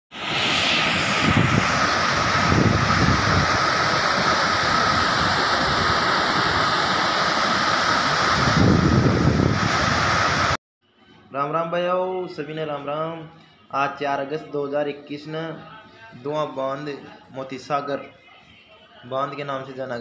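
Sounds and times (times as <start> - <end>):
water rushing over spillway: 0.1 - 10.6
wind on microphone: 0.2 - 10.6.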